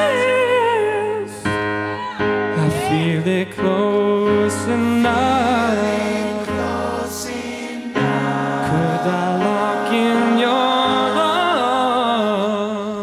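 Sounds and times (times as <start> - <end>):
keyboard chords: 0.0 - 13.0
person singing wavering melody: 2.5 - 7.3
a cappella backing vocals: 4.0 - 13.0.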